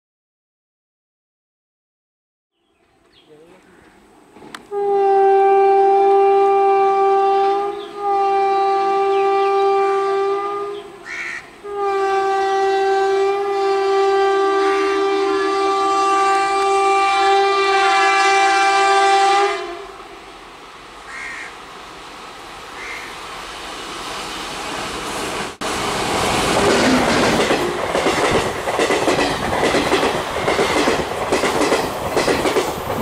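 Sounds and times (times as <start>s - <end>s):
faint train rumble: 2.8s - 33.0s
train horn blasts: 4.6s - 20.2s.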